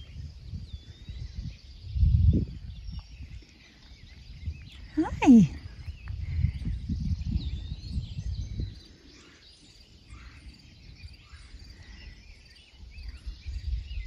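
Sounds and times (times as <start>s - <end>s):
low rumble on microphone: 0.0s - 9.0s
small birds chirping: 0.0s - 14.0s.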